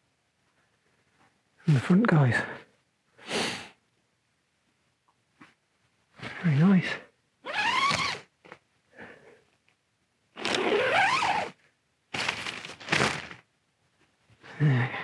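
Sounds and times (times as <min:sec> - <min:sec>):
tent zip pulled open: 0:07.4 - 0:08.3, 0:10.4 - 0:11.6, 0:12.2 - 0:13.4.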